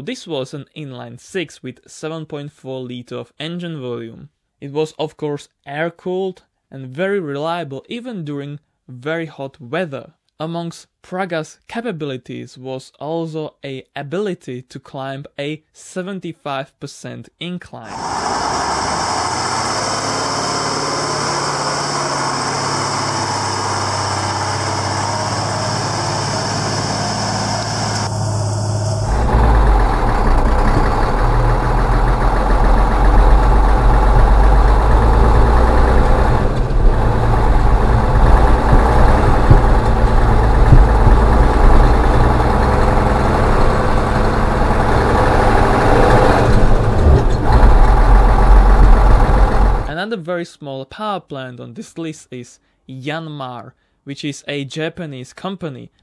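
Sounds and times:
diesel truck engine clattering: 18.1s - 49.9s.

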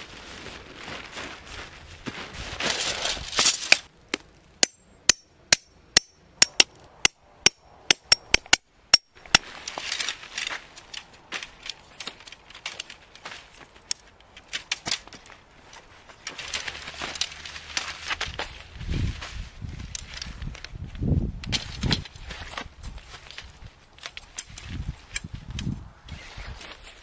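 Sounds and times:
tent fabric rustling: 0.0s - 3.9s, 15.4s - 20.4s
tent poles clicking: 2.6s - 6.9s, 7.5s - 27.0s
hammer striking metal tent stake: 4.6s - 9.6s.

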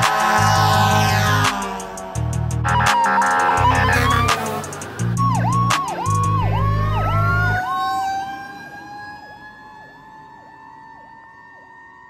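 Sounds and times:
electronic siren sweeping: 0.0s - 12.0s
siren winding upward: 0.0s - 12.0s
air horn blasts: 2.6s - 4.6s.

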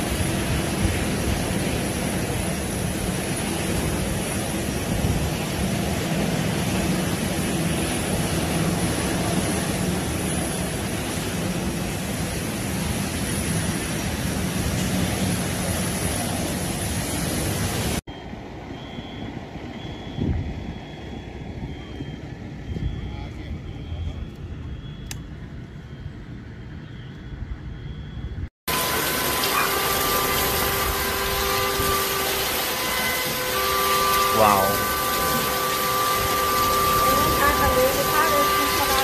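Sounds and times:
high beep: 18.1s - 25.2s
water gushing: 28.7s - 39.0s.

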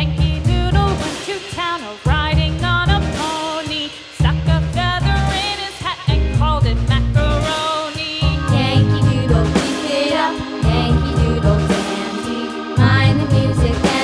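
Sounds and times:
melody over drum and bass beat: 8.2s - 14.0s.

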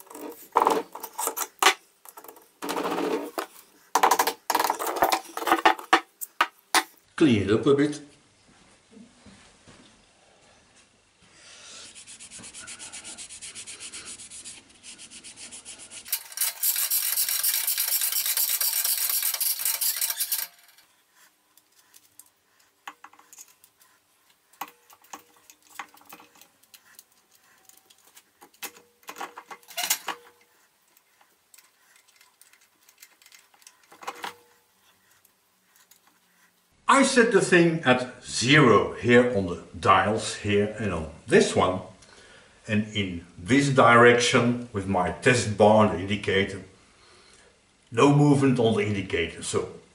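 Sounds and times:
metallic clicks and clinks: 16.1s - 20.9s.

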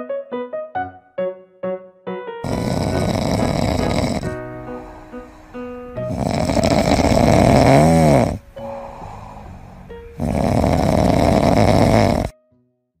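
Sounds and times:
puppy snoring: 2.4s - 12.3s.

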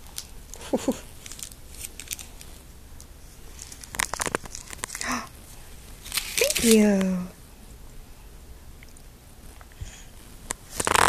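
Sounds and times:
toddler giggling: 0.6s - 1.1s.

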